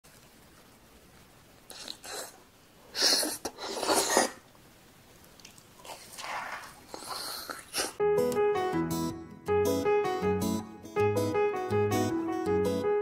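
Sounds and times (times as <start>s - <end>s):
slurping and chewing: 1.6s - 4.5s, 5.2s - 8.0s
piano and guitar tune: 8.0s - 13.0s.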